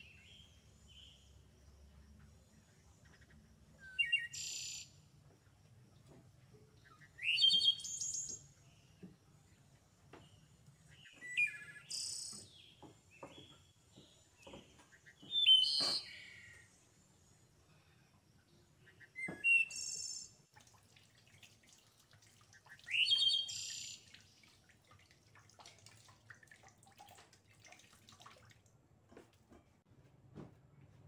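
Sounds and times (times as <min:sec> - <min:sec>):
bird chirping: 0:00.0 - 0:05.4, 0:06.0 - 0:17.0, 0:18.4 - 0:20.4, 0:22.5 - 0:24.3
faint knocks and clicks: 0:12.3 - 0:15.9.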